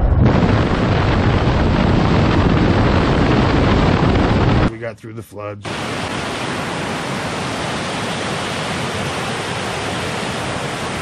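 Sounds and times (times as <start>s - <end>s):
water rushing over rocks: 5.7s - 11.0s.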